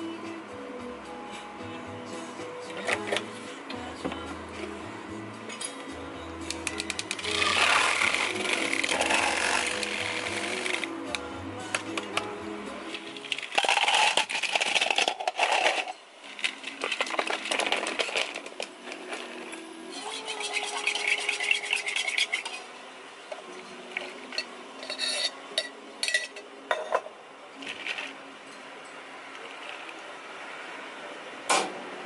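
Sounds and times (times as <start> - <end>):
ice cubes clattering into cup: 13.2 - 19.4, 27.6 - 28.1.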